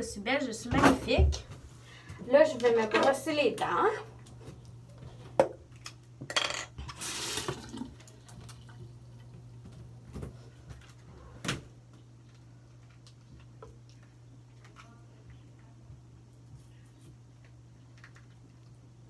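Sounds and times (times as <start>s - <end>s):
tap water running: 6.8s - 10.2s.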